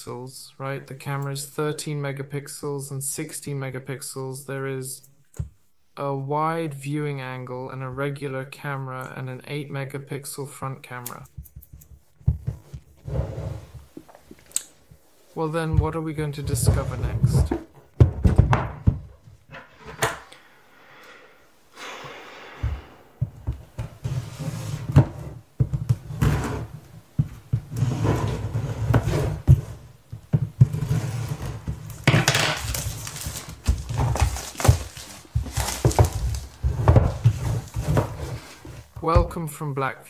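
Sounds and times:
cardboard box scraping on table: 0:12.9 - 0:14.0, 0:24.0 - 0:25.4, 0:27.7 - 0:29.9, 0:30.6 - 0:32.0, 0:32.7 - 0:38.9.

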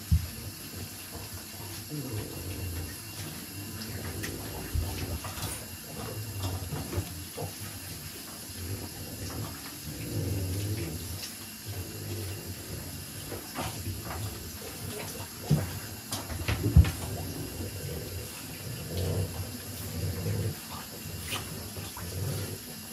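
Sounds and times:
water splashing in bathtub: 0:00.0 - 0:22.9
knocks against tub: 0:15.4 - 0:17.2.

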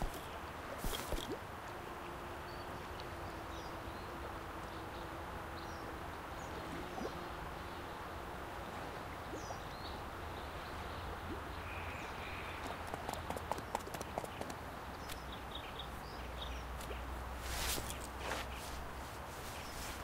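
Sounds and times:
steady background hiss: 0:00.0 - 0:20.0
faint bird chirps: 0:09.3 - 0:12.9.

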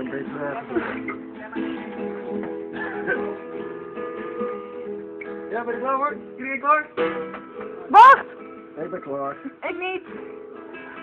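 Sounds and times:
acoustic guitar strumming chords: 0:00.0 - 0:11.0.

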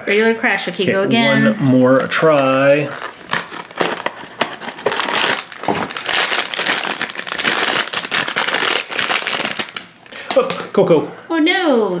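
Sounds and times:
foil bag crinkling: 0:01.9 - 0:10.7
foil bag tearing: 0:02.4 - 0:10.6.

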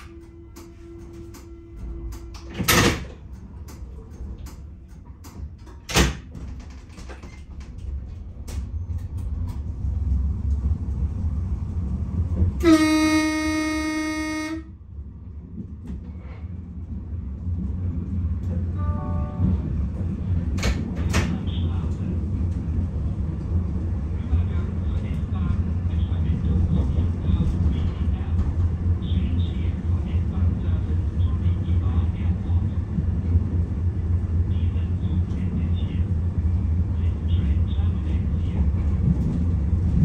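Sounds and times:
train running rumble: 0:00.0 - 0:40.0
train horn blast: 0:12.6 - 0:14.8, 0:18.8 - 0:19.6.

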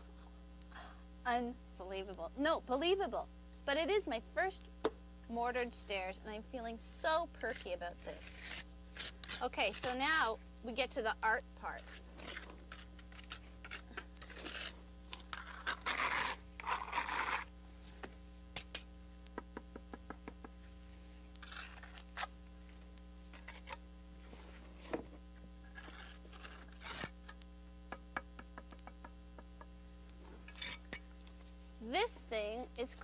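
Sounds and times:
trowel scraping mortar on brick: 0:07.4 - 0:10.3, 0:11.8 - 0:17.5, 0:21.4 - 0:22.3, 0:25.7 - 0:27.2, 0:30.4 - 0:31.0.

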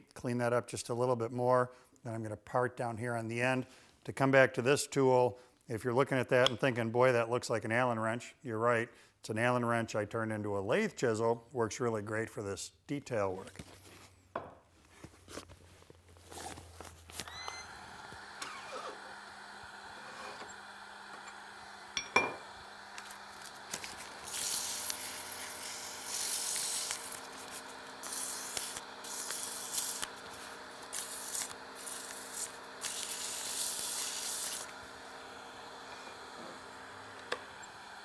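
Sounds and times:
wood lathe motor hum: 0:17.2 - 0:38.0
sandpaper hissing on spinning wood: 0:18.4 - 0:21.2, 0:23.1 - 0:34.8.

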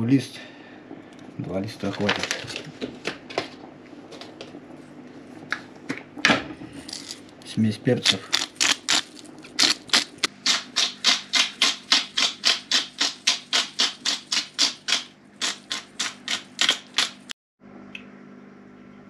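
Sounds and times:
pepper grinder clicking: 0:08.0 - 0:17.3.

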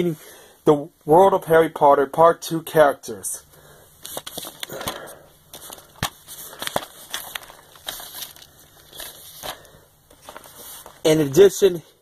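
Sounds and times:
rustling: 0:04.0 - 0:11.4.

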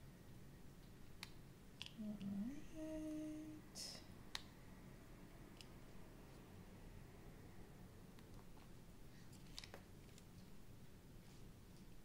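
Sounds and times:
woman humming: 0:02.0 - 0:04.0.

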